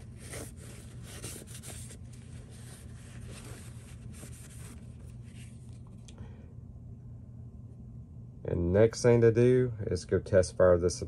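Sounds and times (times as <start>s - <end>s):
paper towel rubbing on metal: 0.0s - 5.6s.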